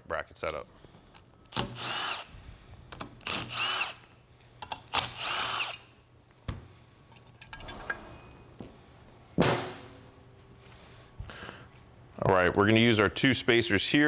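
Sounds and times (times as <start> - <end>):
cordless drill motor whine: 1.8 - 2.3.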